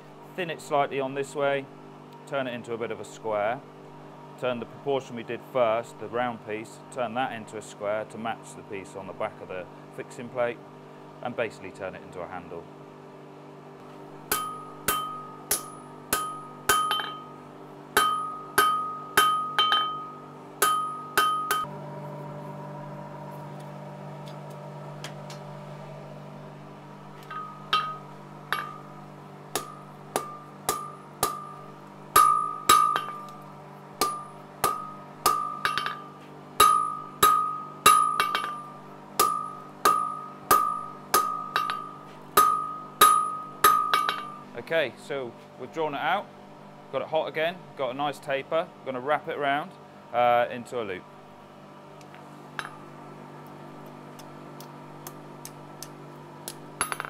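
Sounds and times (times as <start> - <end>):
steady hum: 0.0 - 57.0
hammer striking steel on anvil: 14.3 - 17.4, 18.0 - 21.7, 27.2 - 33.4, 34.0 - 44.5, 52.6 - 52.9, 55.0 - 57.0.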